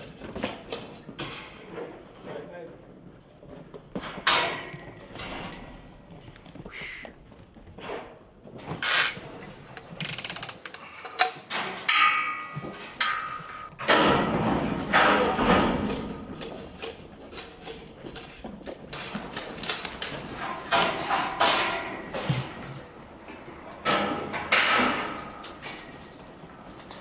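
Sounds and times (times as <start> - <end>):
metal gates clanking and rattling: 4.0 - 5.9, 8.8 - 27.0.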